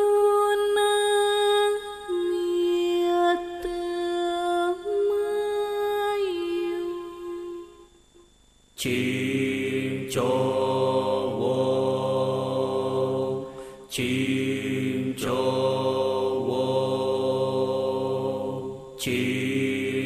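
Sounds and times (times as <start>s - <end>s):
person singing gliding chant: 0.0s - 7.9s, 8.8s - 20.0s
group chanting: 8.8s - 20.0s.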